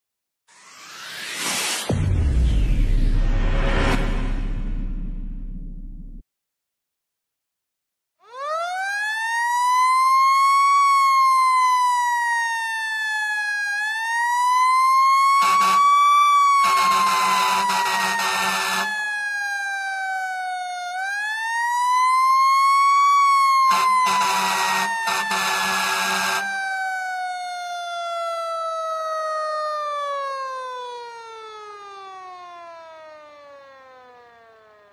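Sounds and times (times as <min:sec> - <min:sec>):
fire truck siren wailing: 0:08.2 - 0:34.9
horn blasts: 0:15.4 - 0:15.9, 0:16.6 - 0:18.9, 0:23.7 - 0:26.5.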